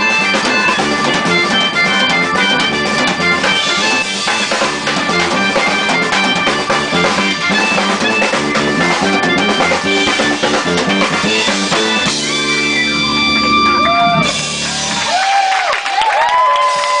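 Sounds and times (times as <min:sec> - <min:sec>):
jazz band playing: 0:00.0 - 0:15.5
audience whistling: 0:00.0 - 0:17.0
audience cheering: 0:12.0 - 0:17.0.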